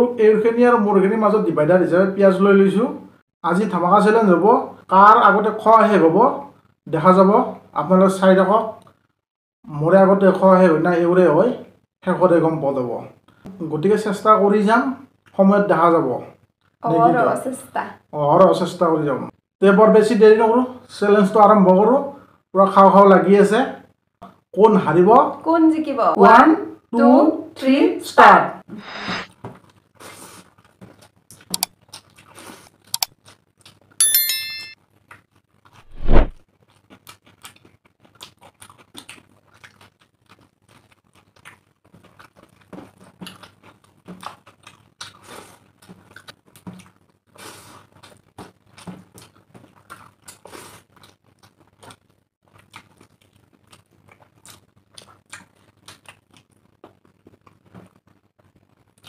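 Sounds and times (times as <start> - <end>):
wet chewing and smacking: 29.6 - 34.0, 36.5 - 59.0
brief ringing chime: 34.0 - 34.8.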